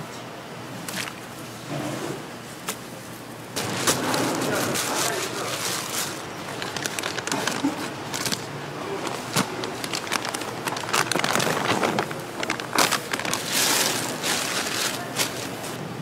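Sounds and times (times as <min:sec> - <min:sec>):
plastic packaging crinkling: 0:03.6 - 0:16.0.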